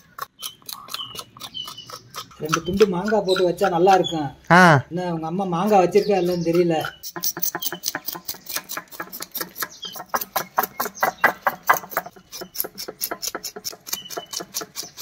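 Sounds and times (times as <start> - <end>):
knife scraping fish scales: 5.6 - 15.0.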